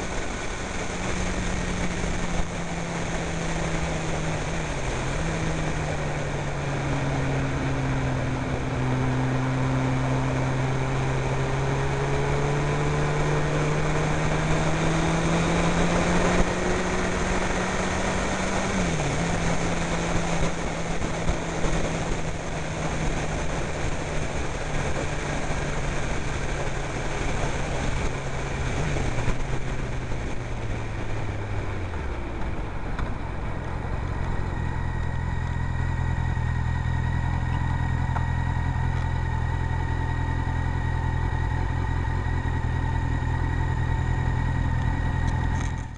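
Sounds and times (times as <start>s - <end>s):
motorcycle engine revving: 0.0s - 45.9s.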